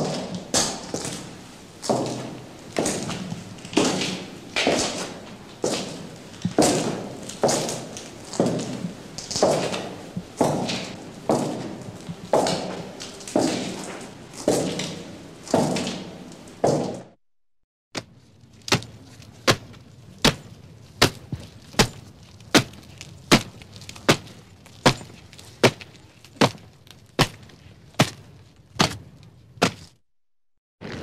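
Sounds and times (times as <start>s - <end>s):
footsteps walking: 0.0s - 17.2s.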